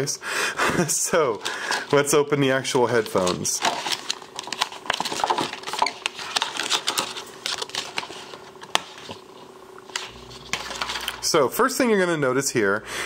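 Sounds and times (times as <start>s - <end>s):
plastic packaging crackling: 1.1s - 11.3s.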